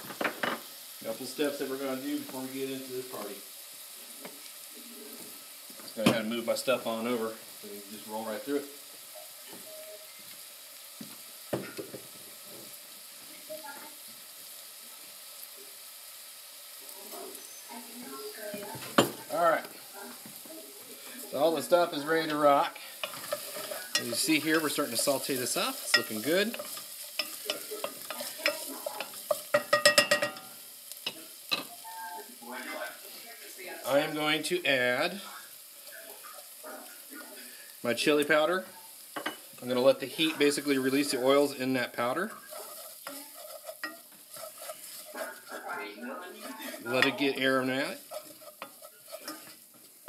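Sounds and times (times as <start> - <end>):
vegetables sizzling in oil: 0.0 - 50.0
wooden spoon scraping pan: 21.3 - 30.3, 39.3 - 50.0.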